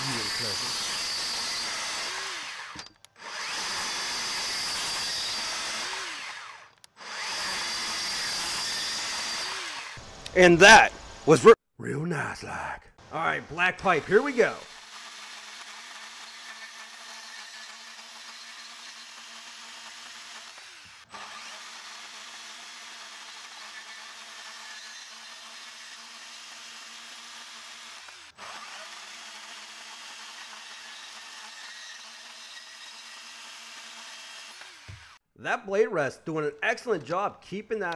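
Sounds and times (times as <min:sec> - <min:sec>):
saw blade grinding through metal: 0:00.0 - 0:10.0, 0:13.6 - 0:19.4, 0:30.3 - 0:35.2
band saw motor whine: 0:00.0 - 0:10.8.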